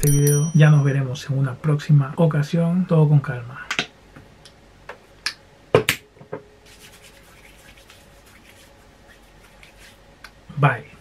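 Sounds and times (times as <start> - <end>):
hands rubbing together: 6.6 - 10.1.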